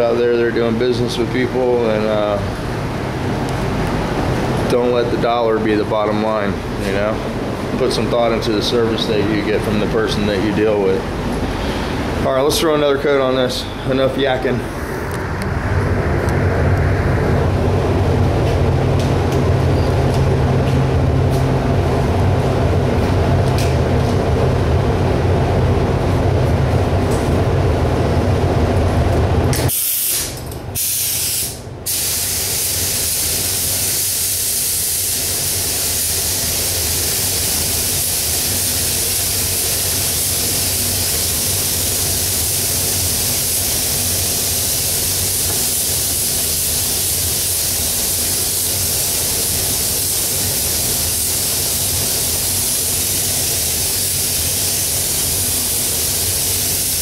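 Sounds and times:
low steady rumble: 0:00.0 - 0:29.7
paint spray gun hissing: 0:29.7 - 0:57.0.

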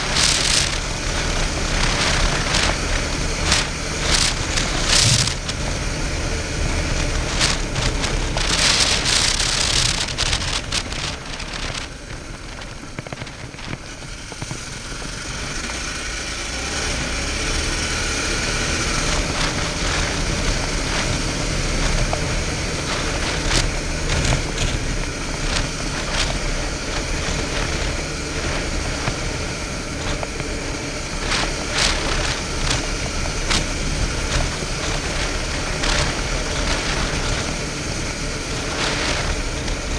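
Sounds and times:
gravel clicking under tyres: 0:00.0 - 0:39.9
motorcycle engine running: 0:00.0 - 0:39.9.

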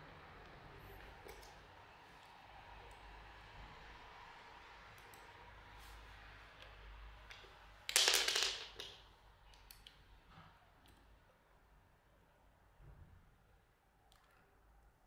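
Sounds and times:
small parts clicking: 0:07.3 - 0:10.0.

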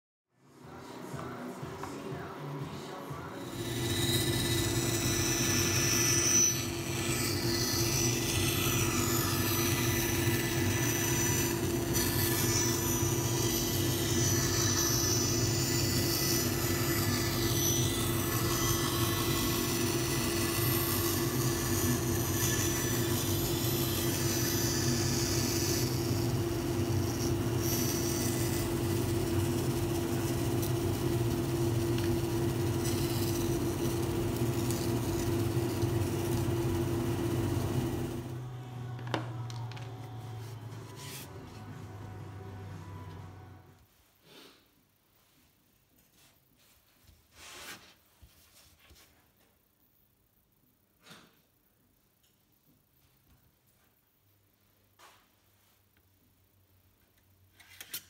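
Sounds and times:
bandsaw running: 0:03.1 - 0:43.7
saw blade cutting plywood: 0:03.3 - 0:38.5.

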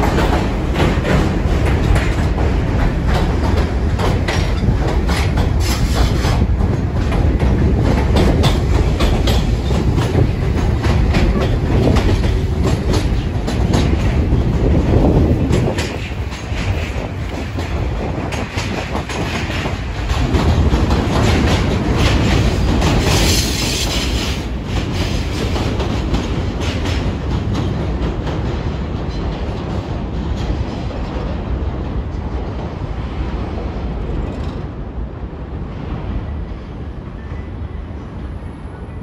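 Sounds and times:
subway train wheels clicking: 0:00.0 - 0:39.0
high train screech: 0:05.5 - 0:06.4, 0:22.0 - 0:25.7.

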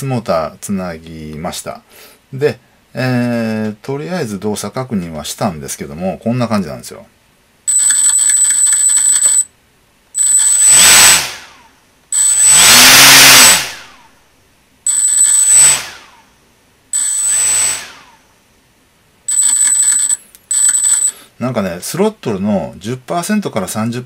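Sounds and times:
high electronic motor buzz: 0:10.2 - 0:11.6, 0:12.2 - 0:14.0, 0:14.9 - 0:16.2, 0:17.0 - 0:18.3
propeller motor whir: 0:10.4 - 0:11.4, 0:12.2 - 0:13.8, 0:14.9 - 0:16.2, 0:17.0 - 0:18.2.

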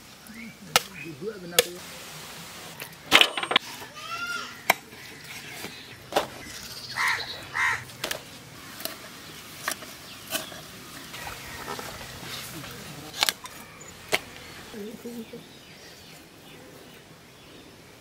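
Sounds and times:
bird chirping: 0:05.2 - 0:07.8
crow cawing: 0:07.0 - 0:07.8.

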